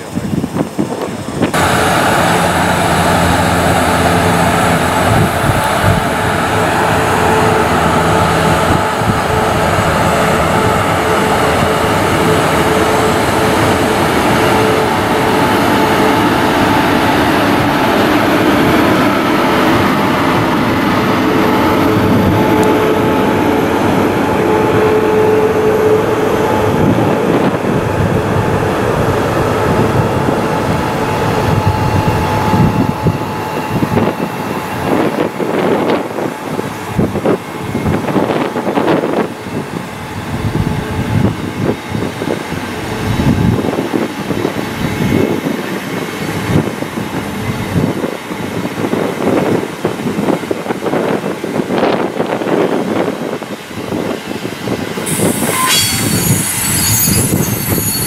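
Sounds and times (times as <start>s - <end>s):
locomotive whine: 0.0s - 58.0s
train wheels clattering on rails: 31.1s - 58.0s.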